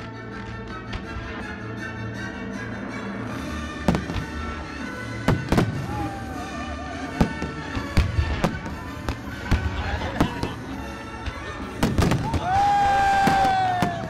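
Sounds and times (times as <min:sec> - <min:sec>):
music playing: 0:00.0 - 0:14.0
firework bangs: 0:03.9 - 0:04.4, 0:05.2 - 0:06.2, 0:07.1 - 0:10.6, 0:11.8 - 0:14.0.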